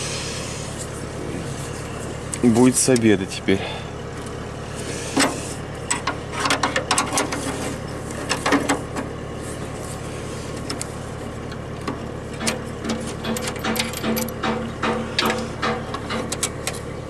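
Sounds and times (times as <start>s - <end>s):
low engine hum: 0.0s - 17.0s
wrench clinking on metal bolts: 13.2s - 15.3s.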